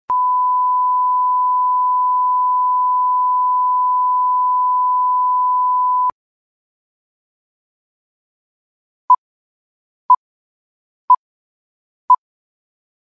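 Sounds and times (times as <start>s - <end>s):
steady test tone beep: 0.1s - 6.1s.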